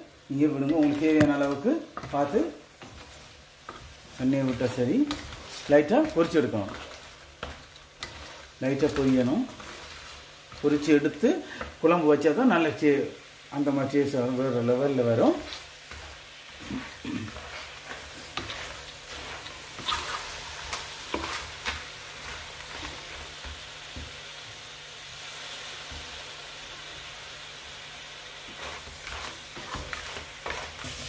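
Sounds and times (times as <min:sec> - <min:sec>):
food sizzling in hot oil: 0:00.0 - 0:31.0
spoon stirring and clicking on pan: 0:00.6 - 0:10.9, 0:15.4 - 0:24.6, 0:28.5 - 0:31.0.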